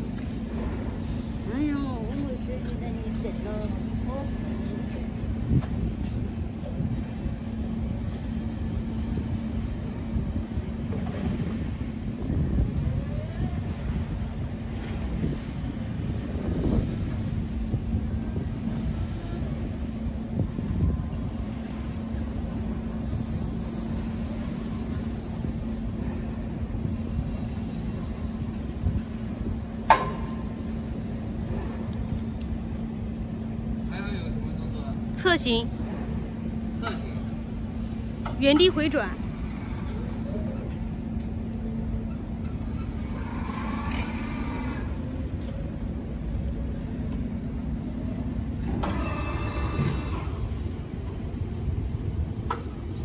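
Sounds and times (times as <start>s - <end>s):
steady low rumble: 0.0s - 48.7s
electric motors whining: 48.0s - 51.3s.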